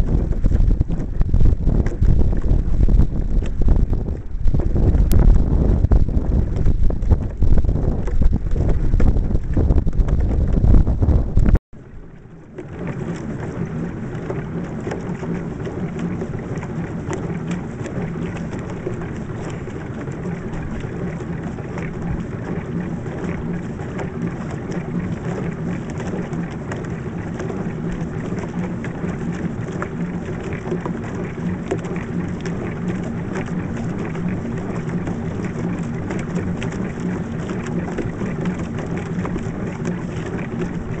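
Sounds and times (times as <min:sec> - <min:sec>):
water rushing along boat hull: 0:00.0 - 0:41.0.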